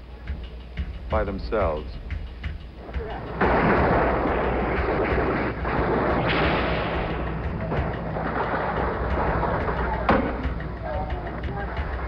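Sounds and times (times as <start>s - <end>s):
gunfire: 3.3s - 10.6s.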